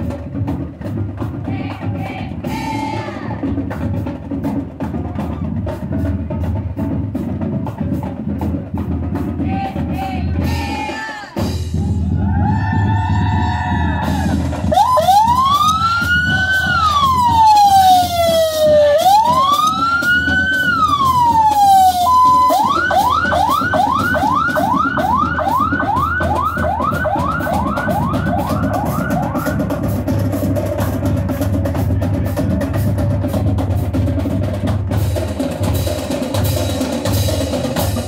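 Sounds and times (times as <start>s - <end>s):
electronic siren wailing and yelping: 14.7s - 29.7s.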